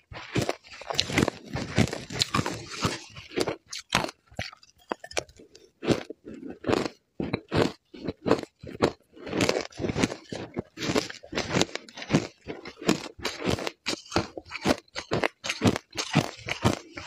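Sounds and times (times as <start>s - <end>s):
shaved ice crunched between teeth: 0.1s - 5.3s.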